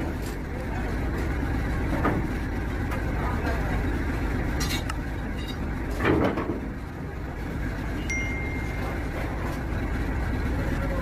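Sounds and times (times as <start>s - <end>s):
low background rumble: 0.0s - 11.0s
ringing chime tone: 8.0s - 9.2s.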